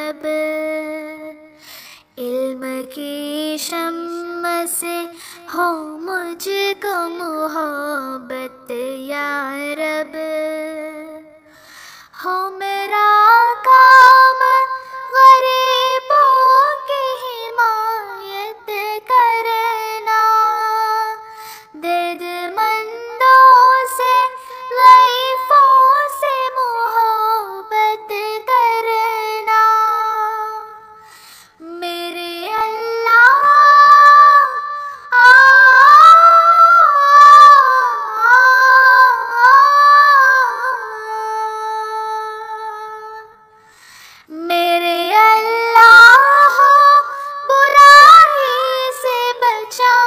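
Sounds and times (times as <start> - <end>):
person singing devotional song: 0.0 - 50.0.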